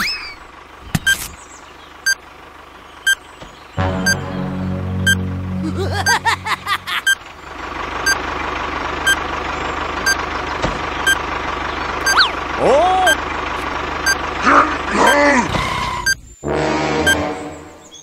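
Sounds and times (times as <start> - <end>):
tractor engine drone: 0.0 - 18.0
countdown timer beeping: 3.8 - 7.2, 12.0 - 12.3, 17.1 - 17.3
squeaky sliding cartoon sounds: 15.0 - 17.6.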